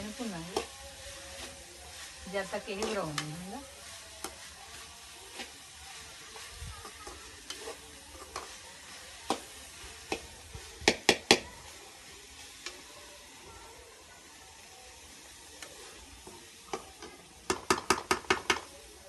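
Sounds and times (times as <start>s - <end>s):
faint steady sizzle: 0.0s - 19.0s
steel spoon scraping a pan: 0.1s - 10.7s.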